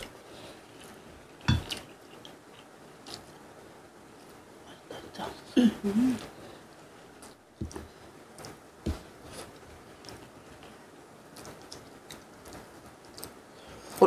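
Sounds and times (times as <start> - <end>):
quiet chewing: 0.0 - 3.4, 6.2 - 14.0.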